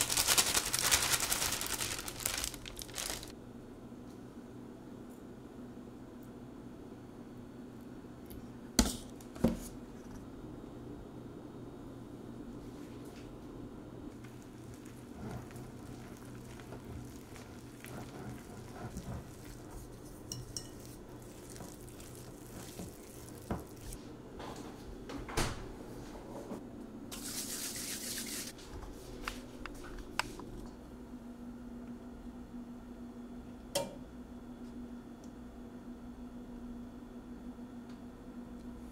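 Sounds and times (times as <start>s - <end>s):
whisk stirring batter in glass bowl: 16.0s - 24.0s.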